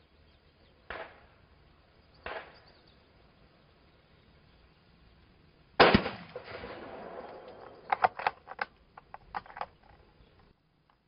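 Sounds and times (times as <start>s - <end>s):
rifle shot: 0.9s - 1.3s, 2.2s - 2.6s, 5.8s - 8.2s
rifle bolt metallic clicks: 7.3s - 10.0s.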